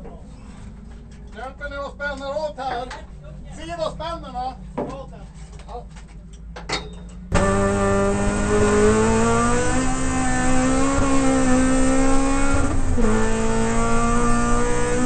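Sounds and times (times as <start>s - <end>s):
race car engine revving: 7.3s - 15.0s.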